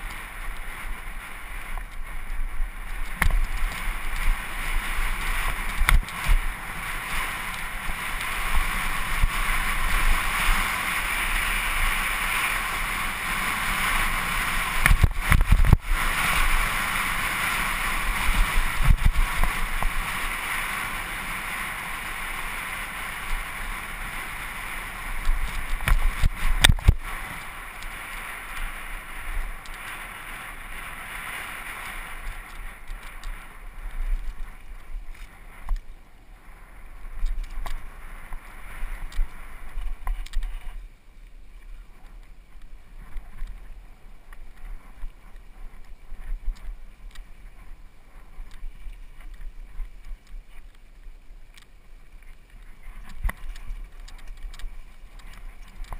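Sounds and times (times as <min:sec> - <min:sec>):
wind and tyre noise: 0:00.0 - 0:55.9
bike knocks and rattles: 0:02.9 - 0:07.2.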